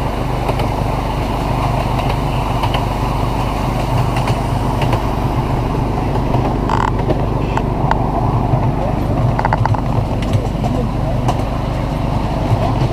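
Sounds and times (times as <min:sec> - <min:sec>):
miniature train mechanical drone: 0:00.0 - 0:12.9.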